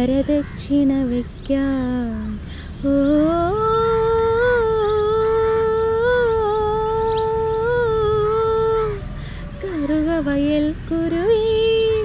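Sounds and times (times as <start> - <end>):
woman singing long note: 2.8 - 12.0.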